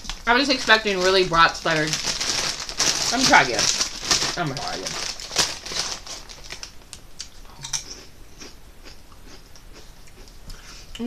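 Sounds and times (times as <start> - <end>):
potato chips crunching: 0.0 - 10.4.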